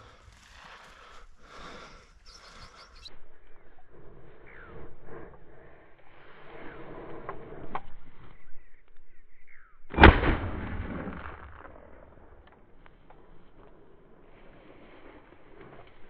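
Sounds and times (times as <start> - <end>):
shotgun shot: 9.9 - 12.4.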